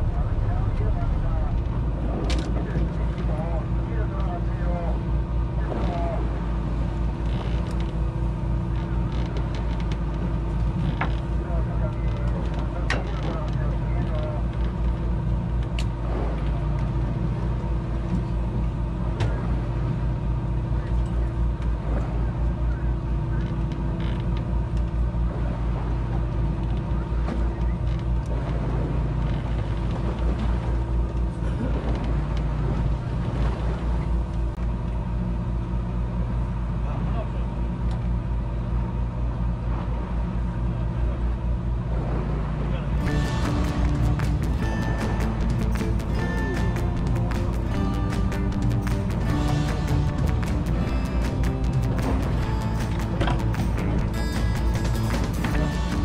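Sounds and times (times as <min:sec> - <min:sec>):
boat engine humming: 0:00.0 - 0:56.0
boat fittings creaking: 0:07.0 - 0:17.0, 0:23.3 - 0:25.0, 0:43.5 - 0:56.0.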